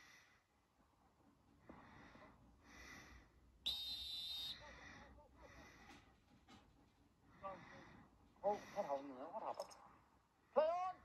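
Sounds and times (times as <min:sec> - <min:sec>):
whistle blast: 0:03.7 - 0:04.6.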